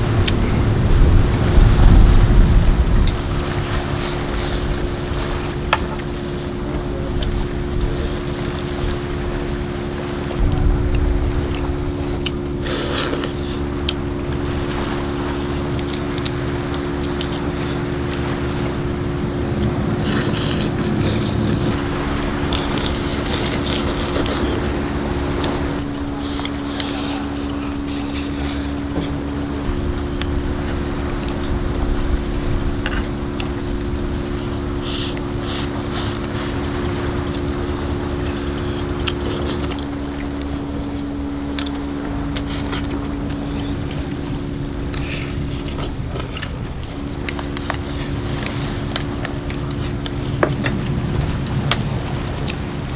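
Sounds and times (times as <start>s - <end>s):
low boat engine hum: 0.0s - 52.9s
crab shell crunching: 7.2s - 14.0s, 15.5s - 17.8s, 19.6s - 21.8s, 22.4s - 24.8s, 25.4s - 29.2s, 34.7s - 51.8s
slurping of rice: 12.6s - 13.6s, 20.0s - 21.8s, 22.5s - 24.8s, 26.2s - 29.2s, 34.8s - 36.7s, 37.5s - 41.7s, 42.4s - 43.8s, 44.9s - 49.1s.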